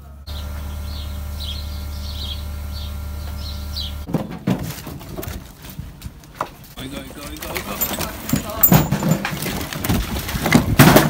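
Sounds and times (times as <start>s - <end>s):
steady low hum: 0.0s - 4.1s
small birds chirping: 0.3s - 4.1s
knocks and thumps: 4.1s - 6.6s, 7.8s - 11.0s.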